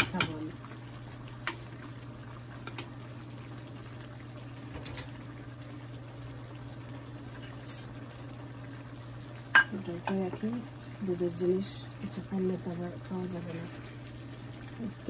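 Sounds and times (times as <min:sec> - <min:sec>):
food bubbling in pots: 0:00.0 - 0:15.0.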